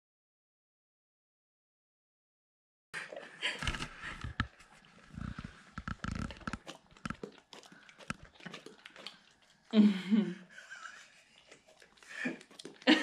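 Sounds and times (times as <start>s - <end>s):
dog licking and smacking lips: 6.2s - 9.8s, 10.9s - 13.0s.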